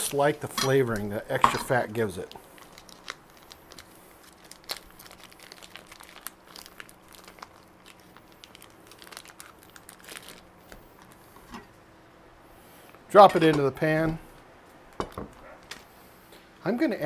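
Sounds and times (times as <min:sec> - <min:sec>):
plastic wrapping crinkling: 0:00.0 - 0:11.8.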